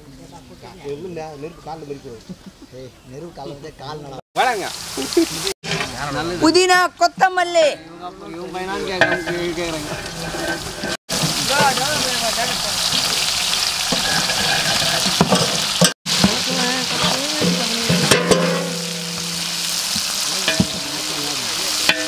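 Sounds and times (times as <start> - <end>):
onions sizzling in hot oil: 4.4 - 6.6, 8.6 - 22.0.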